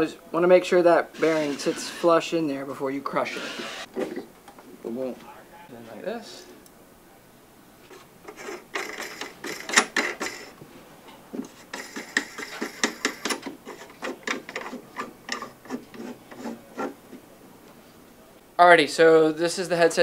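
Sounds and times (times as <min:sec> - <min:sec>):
metal threads rasping and clicking: 0:01.2 - 0:02.1, 0:08.3 - 0:10.5, 0:11.4 - 0:16.9.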